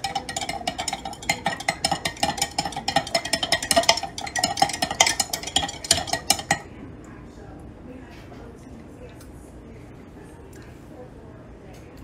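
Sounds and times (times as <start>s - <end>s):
knife clinking against glass jar: 0.0s - 6.6s.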